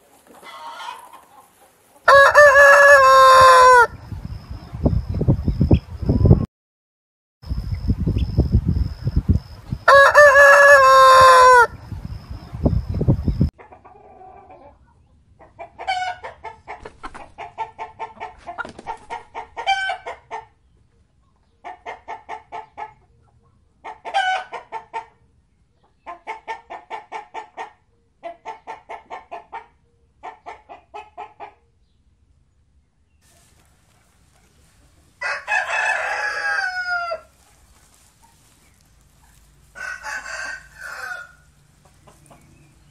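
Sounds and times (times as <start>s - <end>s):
chicken clucking: 0.0s - 6.4s, 9.9s - 31.7s, 33.3s - 42.9s
rooster crowing: 2.0s - 4.0s, 9.8s - 11.8s, 35.2s - 37.3s, 39.7s - 41.6s.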